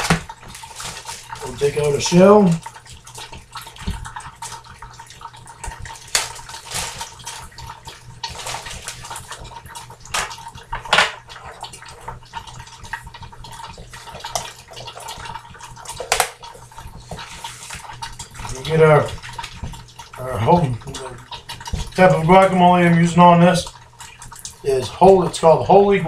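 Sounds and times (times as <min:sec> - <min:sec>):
plastic package rustling: 0:00.0 - 0:01.6, 0:06.0 - 0:07.5, 0:08.2 - 0:09.4.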